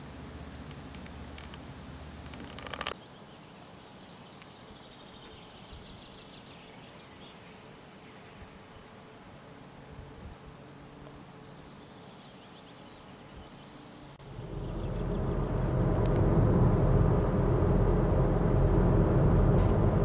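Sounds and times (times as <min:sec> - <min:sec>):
low rumble: 0:14.2 - 0:20.0
crackling burst: 0:14.3 - 0:20.0.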